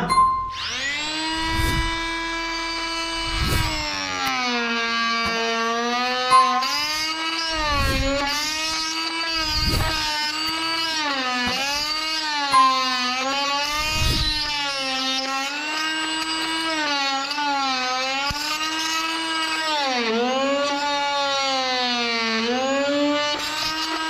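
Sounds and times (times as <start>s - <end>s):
oscillating multi-tool buzzing whine: 0.0s - 24.0s.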